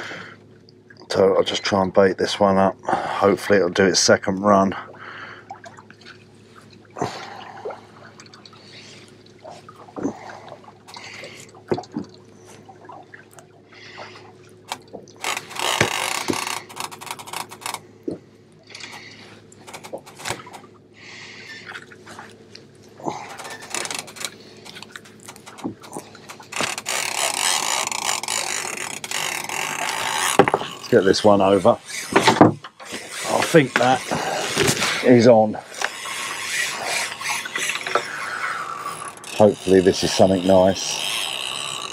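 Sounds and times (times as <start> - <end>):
small clicks taps and scrapes: 14.7 - 19.0, 23.4 - 31.0, 35.7 - 38.2.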